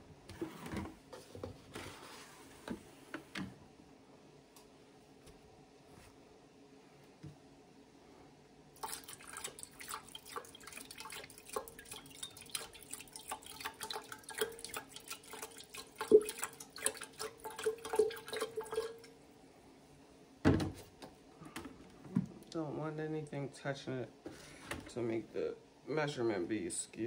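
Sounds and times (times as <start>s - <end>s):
water pouring into metal pitcher: 8.8s - 19.1s.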